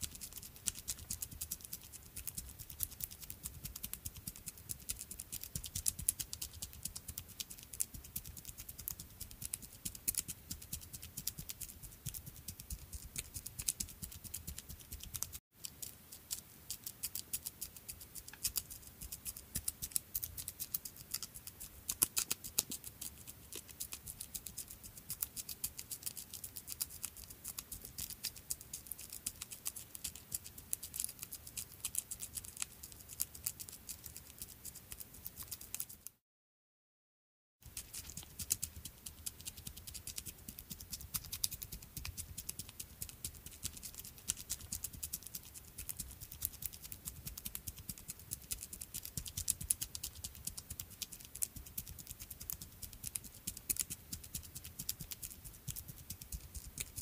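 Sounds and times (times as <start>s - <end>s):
small creature footsteps pattering: 37.7s - 45.1s.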